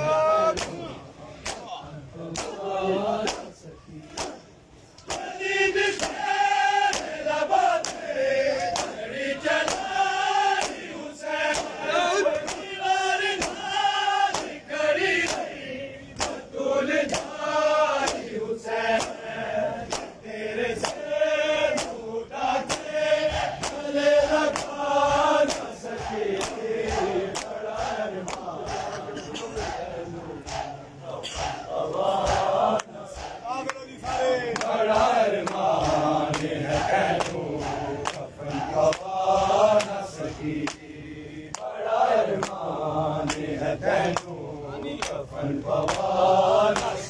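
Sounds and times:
men chanting in unison: 0.0s - 47.0s
hands slapping bare chests: 1.4s - 1.7s, 2.3s - 2.6s, 3.2s - 3.5s, 4.1s - 4.4s, 5.0s - 5.4s, 6.9s - 7.1s, 7.8s - 9.0s, 9.6s - 10.8s, 11.5s - 12.7s, 13.3s - 13.7s, 15.2s - 15.6s, 16.2s - 16.4s, 19.9s - 20.2s, 20.8s - 21.1s, 21.7s - 22.0s, 22.6s - 24.8s, 25.4s - 28.9s, 31.4s - 39.2s, 39.8s - 40.0s, 40.6s - 40.9s, 41.5s - 41.8s, 42.4s - 43.5s, 45.8s - 46.1s, 46.7s - 47.0s.

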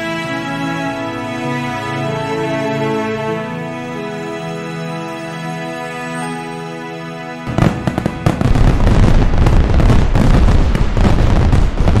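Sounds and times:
held music chord: 0.0s - 11.0s
fireworks crackling and booming: 7.4s - 12.0s.

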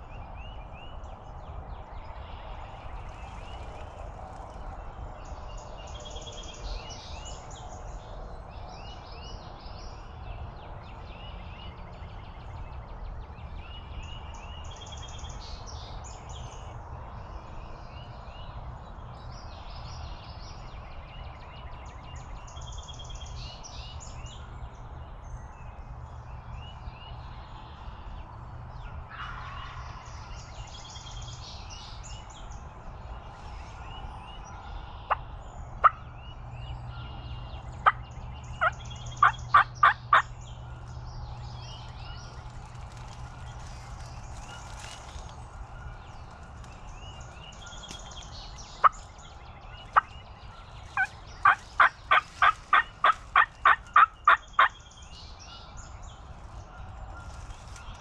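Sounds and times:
songbirds singing: 0.0s - 58.0s
turkey calls: 38.6s - 40.3s, 50.9s - 54.8s.

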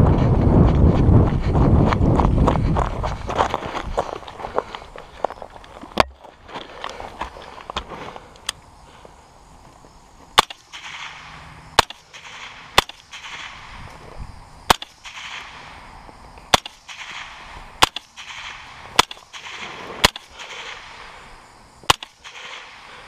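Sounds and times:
rifle shots with echo: 10.4s - 13.8s, 14.7s - 15.8s, 16.5s - 21.1s, 21.9s - 23.0s.

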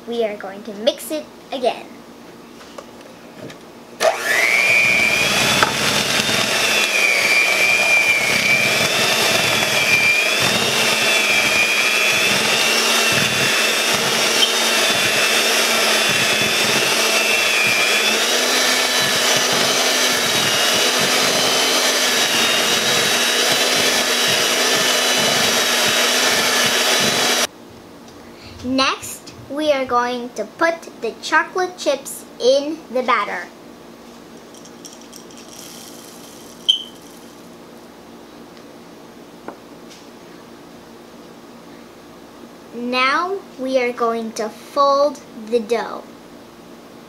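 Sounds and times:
electric hand mixer running: 4.0s - 27.5s, 35.4s - 37.4s.

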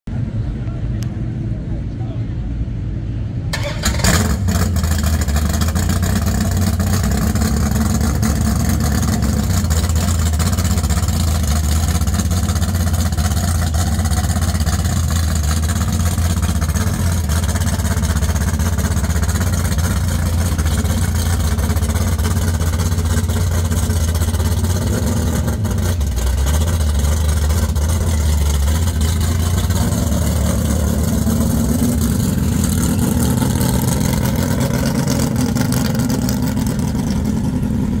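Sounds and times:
car engine deep exhaust rumble: 0.1s - 38.0s.

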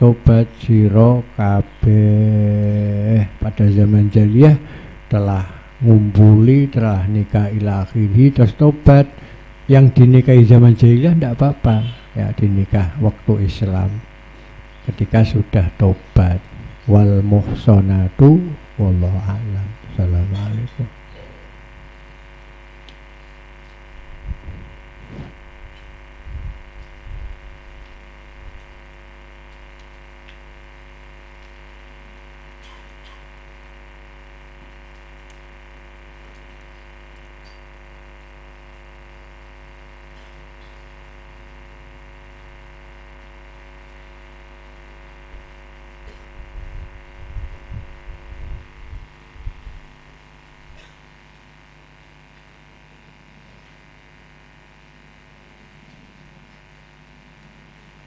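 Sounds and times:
electrical hum: 0.0s - 58.0s.

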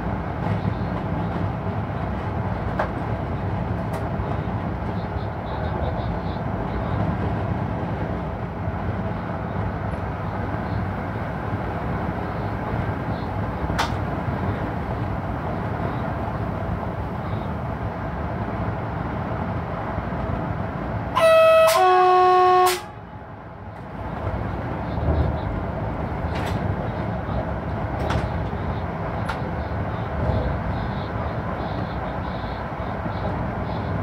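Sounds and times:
locomotive cab running noise: 0.0s - 34.0s
two-tone locomotive horn: 21.1s - 23.0s.

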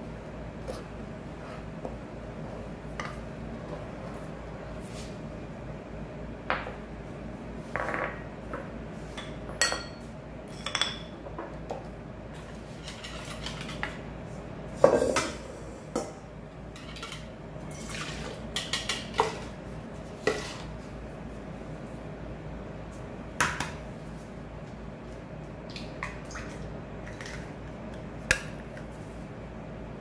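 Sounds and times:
bowls and utensils clinking: 9.2s - 11.2s.

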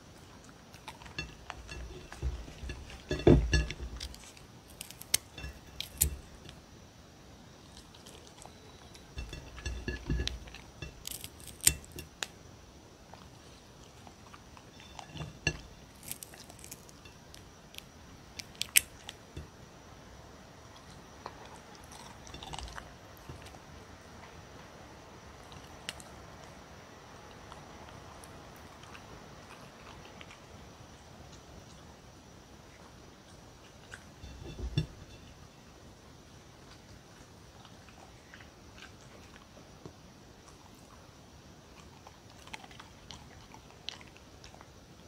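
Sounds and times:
puppy crunching cucumber: 0.0s - 6.6s, 7.6s - 12.4s, 13.1s - 19.6s, 20.7s - 24.4s, 41.7s - 45.0s.

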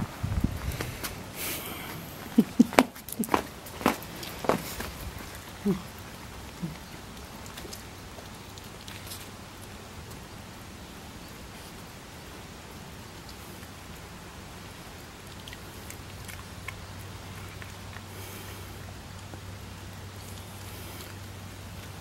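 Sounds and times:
steady outdoor hiss: 0.0s - 22.0s
dog grunting: 4.4s - 7.1s.

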